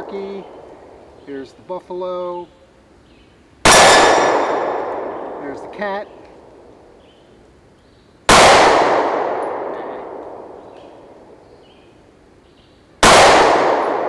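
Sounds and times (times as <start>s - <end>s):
pistol shots with echo: 3.6s - 6.7s, 8.3s - 11.4s, 13.0s - 14.0s.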